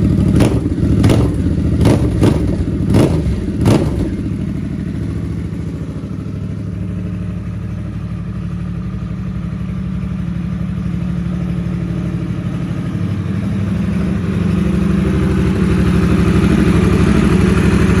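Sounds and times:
motorcycle engine idling: 0:00.0 - 0:18.0.

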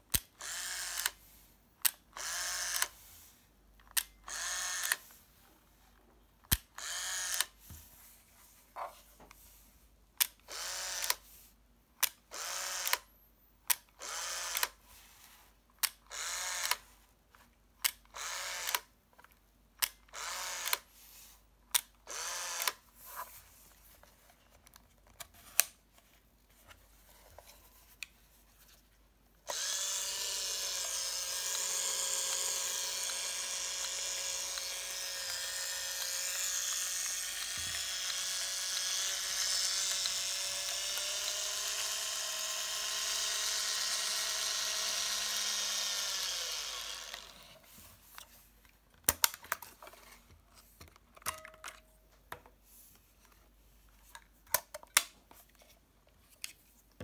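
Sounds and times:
camera motor whine: 0:00.4 - 0:01.2, 0:02.2 - 0:02.9, 0:04.3 - 0:05.0, 0:06.8 - 0:07.5, 0:12.3 - 0:13.0, 0:16.1 - 0:16.8, 0:20.1 - 0:20.8, 0:29.5 - 0:47.4.

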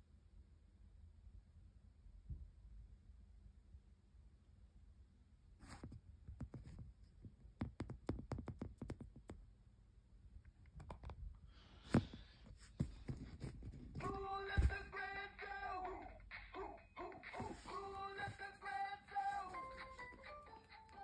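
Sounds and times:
light clicks and taps on toy: 0:07.6 - 0:09.4.

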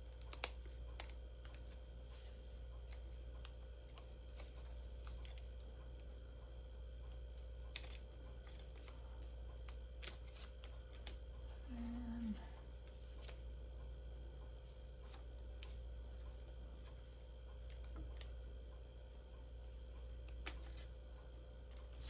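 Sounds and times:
paper peeling ticks: 0:00.0 - 0:06.1, 0:07.0 - 0:11.6
steady low hum: 0:00.0 - 0:22.0
faint paper rustles: 0:00.1 - 0:06.1, 0:07.3 - 0:13.6, 0:21.7 - 0:22.0.

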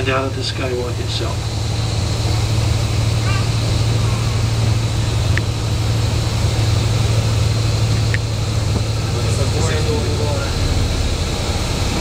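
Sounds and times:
bus engine and road noise: 0:00.0 - 0:12.0.

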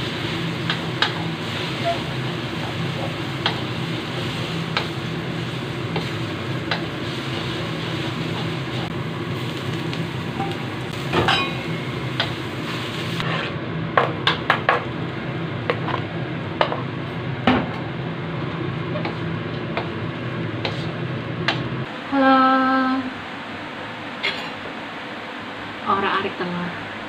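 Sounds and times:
wooden spatula scraping a wok: 0:12.7 - 0:13.6, 0:20.6 - 0:21.0.

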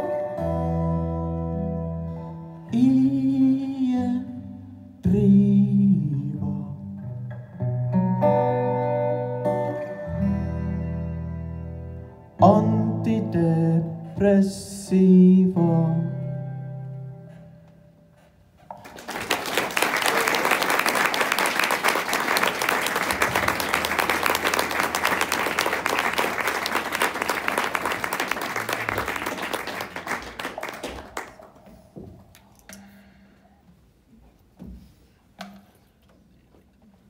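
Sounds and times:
audience applauding: 0:18.7 - 0:31.9.

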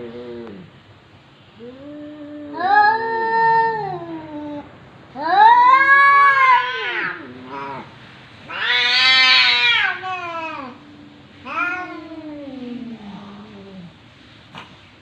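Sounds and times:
cats yowling: 0:01.6 - 0:10.8, 0:11.4 - 0:14.0.

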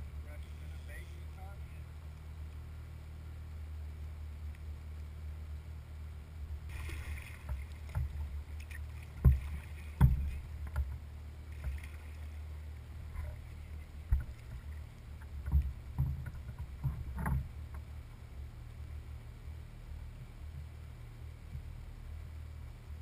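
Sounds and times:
low rumble: 0:00.0 - 0:23.0
paddle splashing in water: 0:06.7 - 0:17.8
paddle knocking against kayak: 0:06.8 - 0:12.1, 0:14.0 - 0:17.9.

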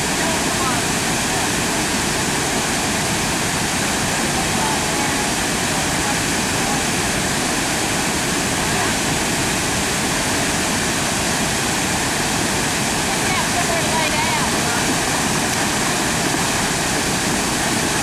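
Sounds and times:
waterfall pouring over rocks: 0:00.0 - 0:18.0.

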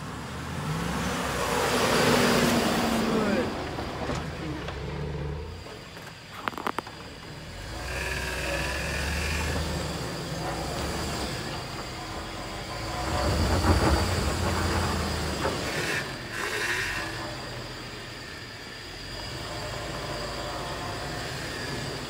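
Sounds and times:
engine rumbling at low revs: 0:00.0 - 0:22.0
tyres crunching over rock: 0:05.6 - 0:07.4.

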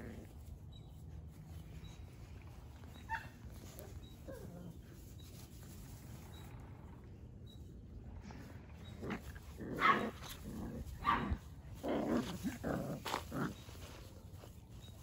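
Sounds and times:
puppies growling: 0:00.0 - 0:00.4, 0:08.0 - 0:14.1
puppies barking: 0:09.1 - 0:14.0.

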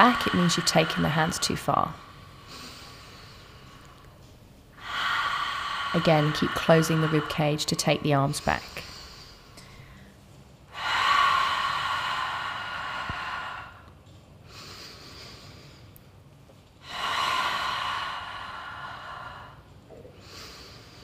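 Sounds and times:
woman exhaling deeply: 0:00.0 - 0:04.0, 0:04.8 - 0:10.1, 0:10.7 - 0:13.9.

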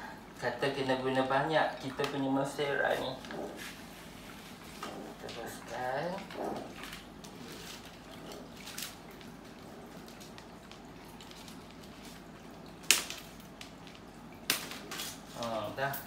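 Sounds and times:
plastic leaves rustling: 0:06.8 - 0:16.0.

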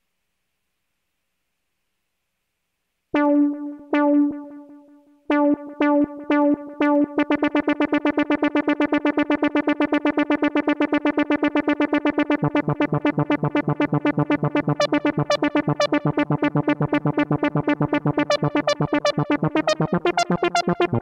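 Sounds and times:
bright synth arpeggio notes: 0:03.2 - 0:09.6, 0:12.3 - 0:21.0.

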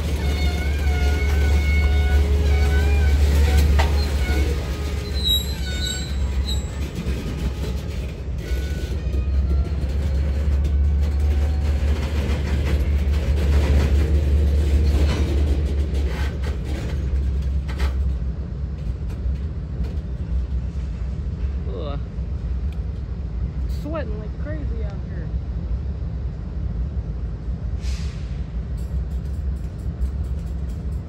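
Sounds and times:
train rumbling: 0:00.0 - 0:31.0
high squeals: 0:00.1 - 0:07.0.

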